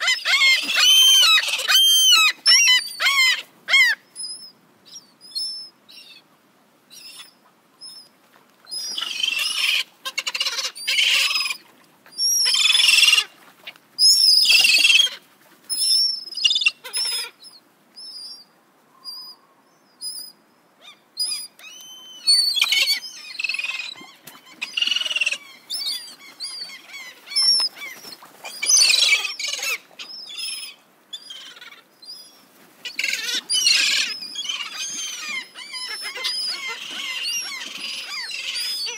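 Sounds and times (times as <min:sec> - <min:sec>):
gulls calling: 0:00.0 - 0:06.2, 0:20.8 - 0:38.9.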